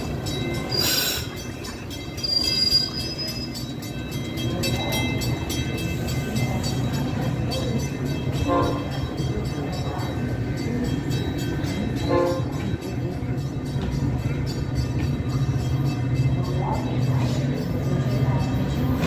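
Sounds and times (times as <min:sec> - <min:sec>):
train rolling past rumbling: 0:00.0 - 0:19.0
train horn toots: 0:08.4 - 0:08.9.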